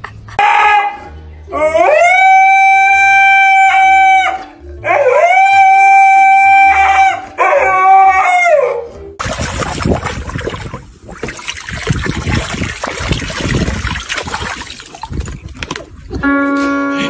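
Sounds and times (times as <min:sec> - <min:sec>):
husky howling: 0:00.4 - 0:08.9.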